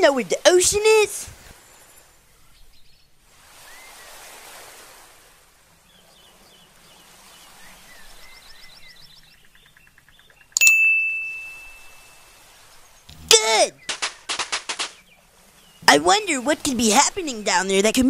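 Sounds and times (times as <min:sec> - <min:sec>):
soft waves washing: 0:00.0 - 0:10.0, 0:10.6 - 0:18.0
high chirps: 0:10.5 - 0:12.5
cartoon ding: 0:10.6 - 0:12.2.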